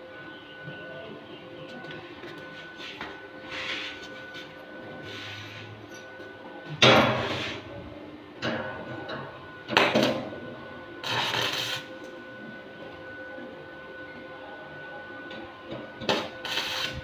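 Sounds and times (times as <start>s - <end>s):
welding arc crackling: 11.0s - 11.9s, 16.0s - 17.0s.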